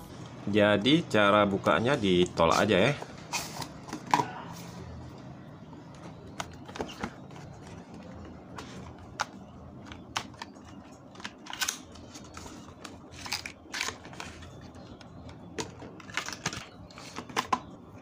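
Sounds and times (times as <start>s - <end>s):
card rustling: 6.0s - 17.7s.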